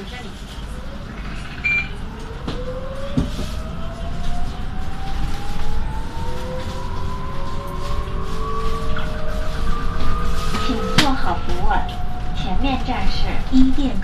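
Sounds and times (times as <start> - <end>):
low rumble of bus ride: 0.0 - 14.0
bus whine rising in pitch: 0.4 - 13.6.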